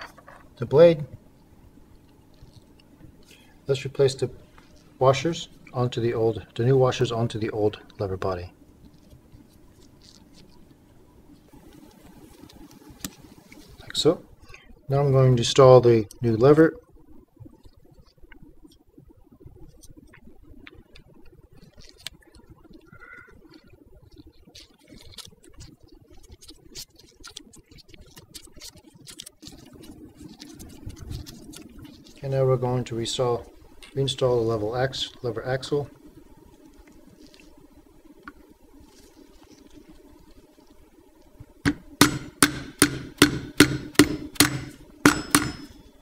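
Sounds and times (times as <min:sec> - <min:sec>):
small clicks and scratches: 0:01.9 - 0:05.0, 0:07.7 - 0:14.0, 0:19.5 - 0:42.0
mallet tapping metal axle: 0:41.7 - 0:45.8.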